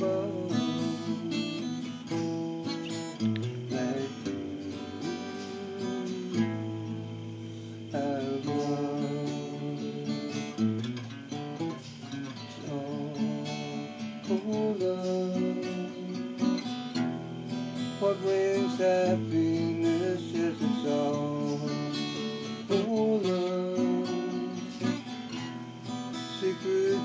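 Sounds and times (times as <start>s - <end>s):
acoustic guitar strumming: 0.0s - 27.0s.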